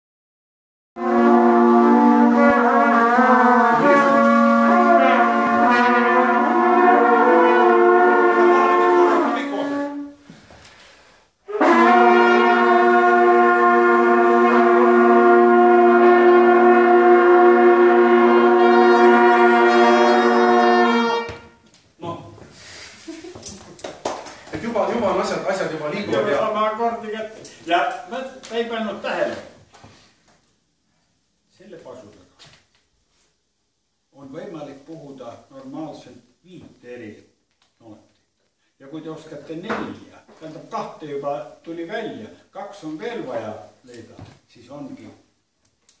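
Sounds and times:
brass hunting horns playing: 0:01.0 - 0:10.2, 0:11.4 - 0:21.7.

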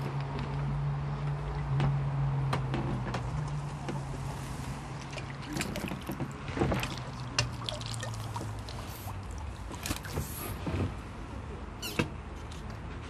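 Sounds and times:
fishing gear clicks and rustles: 0:03.2 - 0:11.0
water splashing and trickling: 0:03.3 - 0:11.3.

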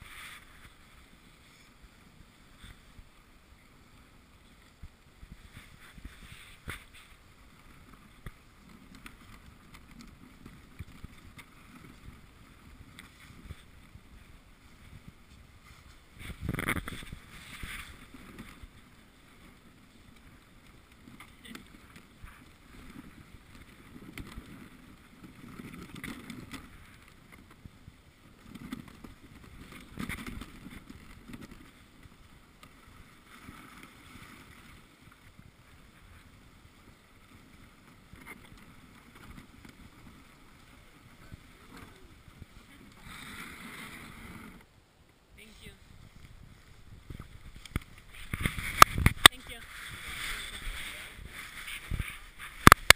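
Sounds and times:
sled runners hissing on snow: 0:00.0 - 0:07.7, 0:49.4 - 0:52.6.

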